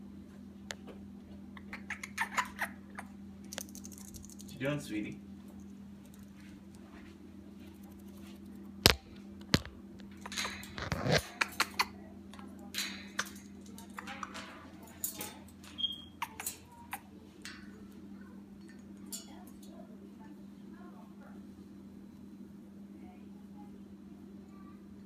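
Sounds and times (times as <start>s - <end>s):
faint low hum: 0.0s - 25.0s
parrot clicking on cage bars: 1.7s - 4.5s, 7.8s - 18.0s.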